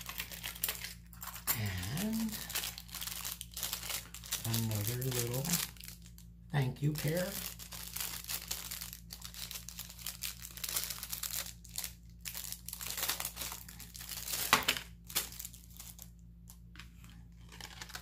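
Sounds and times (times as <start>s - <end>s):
plastic bag crinkling: 0.0s - 18.0s.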